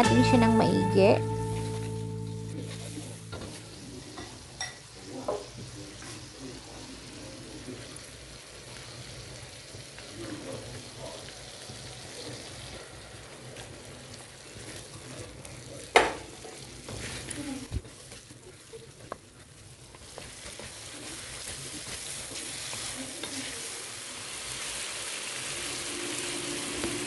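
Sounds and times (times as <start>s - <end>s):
sauce sizzling in a wok: 0.0s - 27.0s
knocks on a pan: 15.9s - 16.2s.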